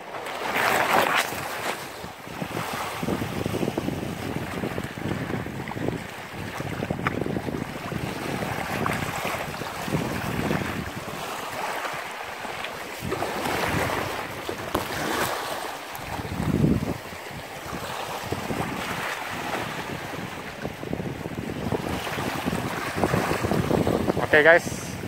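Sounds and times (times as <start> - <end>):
small waves washing ashore: 0.0 - 25.0
wind buffeting microphone: 1.2 - 25.0.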